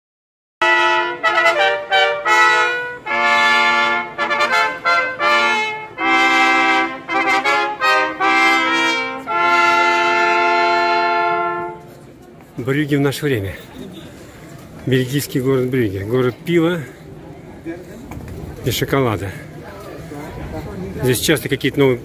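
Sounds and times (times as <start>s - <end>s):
trumpet-led brass music: 0.6s - 12.0s.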